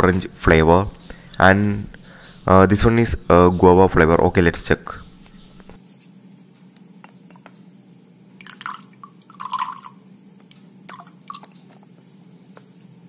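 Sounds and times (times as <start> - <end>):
fruit drink pouring into a glass: 8.4 - 10.0.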